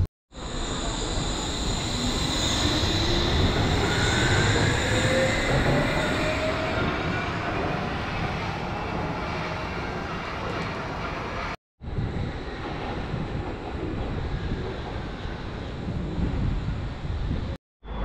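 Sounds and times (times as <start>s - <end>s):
suspended monorail train running: 0.4s - 17.6s.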